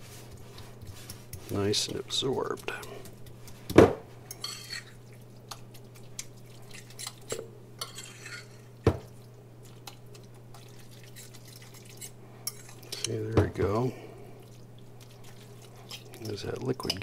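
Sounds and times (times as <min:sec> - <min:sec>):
fork scraping ceramic bowl: 0:04.3 - 0:05.0, 0:06.7 - 0:08.7, 0:11.1 - 0:13.1
wet mixture squishing: 0:04.4 - 0:07.3, 0:09.0 - 0:12.9, 0:13.6 - 0:17.0.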